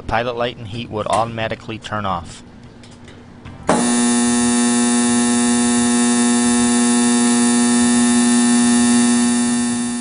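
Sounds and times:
loud steady buzzer: 3.7 - 10.0.

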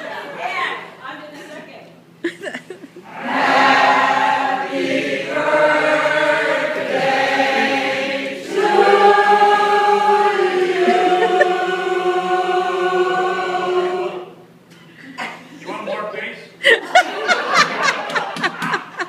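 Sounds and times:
mixed choir singing chords: 3.0 - 14.6.

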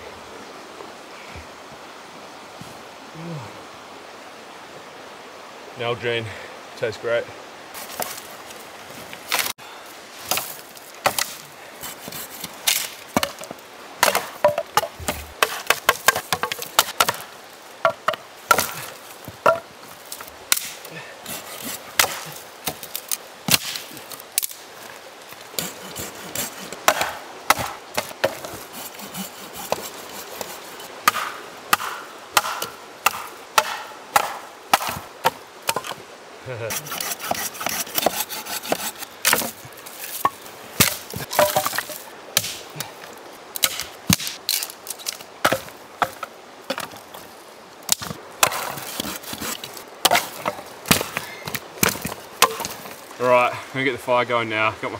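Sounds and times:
dry branches cracking and snapping: 18.5 - 28.3, 43.6 - 47.2.

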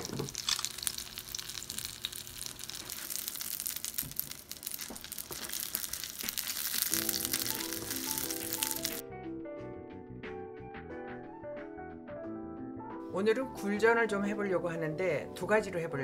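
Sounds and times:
oysters sizzling in oil: 0.0 - 9.0
background music: 6.9 - 16.0.

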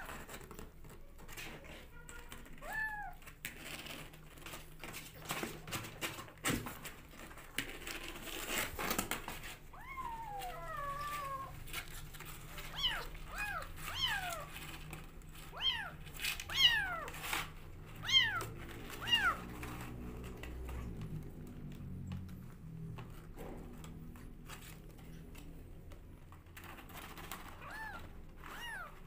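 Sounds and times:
scratchy clicks and rustles: 0.0 - 29.0
kittens meowing: 9.7 - 11.6, 12.7 - 14.6, 15.5 - 17.2, 18.0 - 19.5, 27.6 - 29.0.

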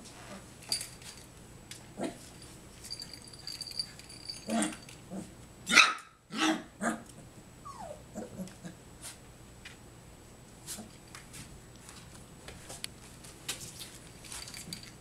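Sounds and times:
puppies barking and growling: 4.3 - 7.1
puppy whining: 7.6 - 8.8.

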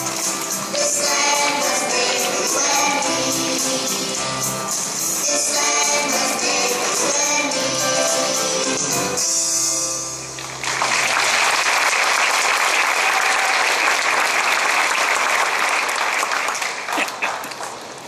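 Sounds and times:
audience applause: 10.5 - 18.0.

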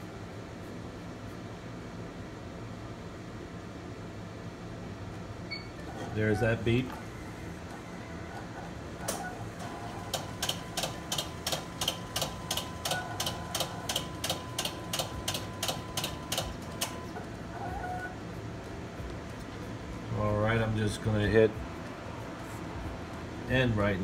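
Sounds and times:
printer mechanical clicking: 9.0 - 17.3.

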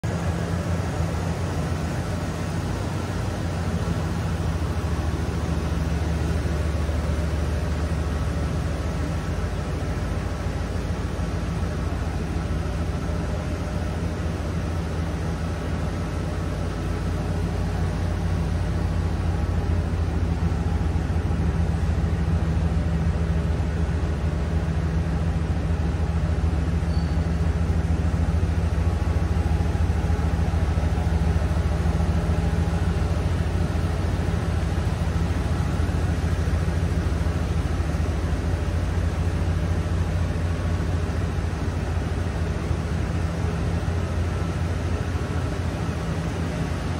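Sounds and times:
pickup engine idling: 0.0 - 46.9.

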